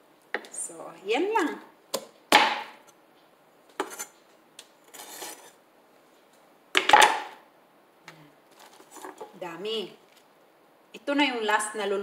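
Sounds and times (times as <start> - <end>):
knife scraping board: 3.8 - 4.2, 4.9 - 5.6.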